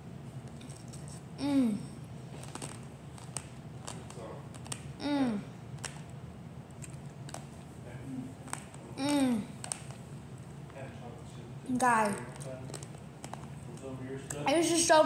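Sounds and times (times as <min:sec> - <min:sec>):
person humming mmm: 0:01.4 - 0:02.0, 0:05.0 - 0:05.6, 0:09.0 - 0:09.6.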